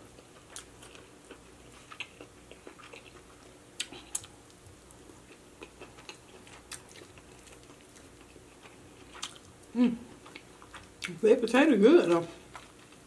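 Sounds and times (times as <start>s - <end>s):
chewing and mouth clicks: 0.2s - 4.6s, 5.3s - 11.2s.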